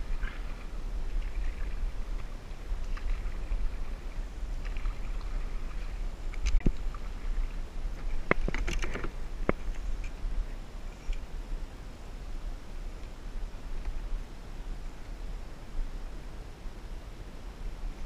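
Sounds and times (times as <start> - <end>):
paddle splashing in calm water: 0.0 - 11.3
steady low rumble: 0.0 - 18.0.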